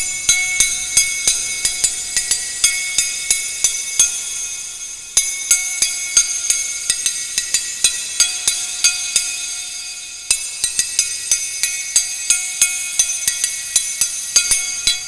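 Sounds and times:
bright ringing struck notes: 0.0s - 15.0s.

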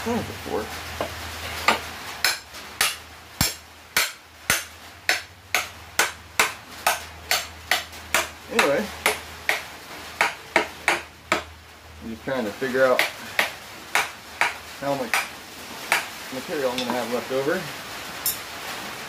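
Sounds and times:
hammer clanking on steel: 1.7s - 9.6s.

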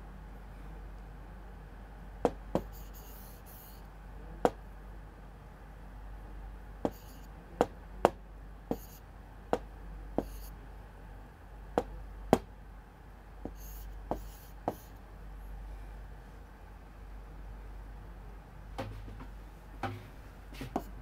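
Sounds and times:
pen tip tapping on board: 2.6s - 2.8s, 6.9s - 7.1s, 13.4s - 14.9s
scratchy pen strokes: 2.6s - 3.8s, 6.9s - 7.3s, 8.7s - 9.0s, 10.2s - 10.5s, 13.5s - 15.0s.

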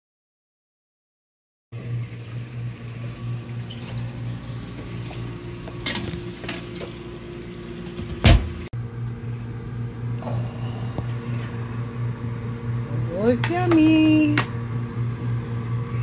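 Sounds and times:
steady low hum: 1.8s - 16.0s
oven door thump: 8.0s - 8.7s.

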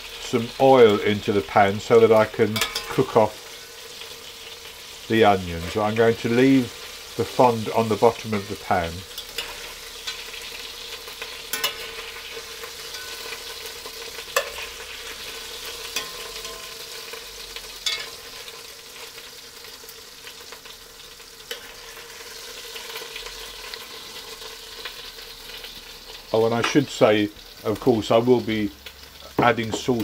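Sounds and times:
hot oil sizzling in a pot: 0.0s - 30.0s.

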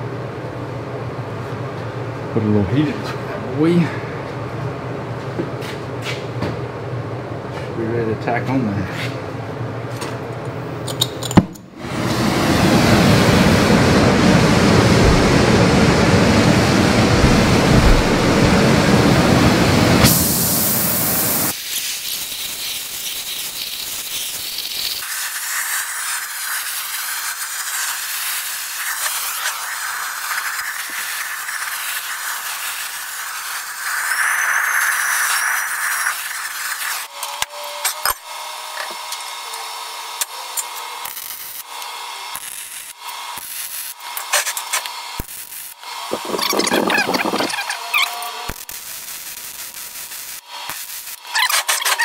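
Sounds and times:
torch flame hissing: 11.8s - 37.1s, 42.3s - 52.0s.

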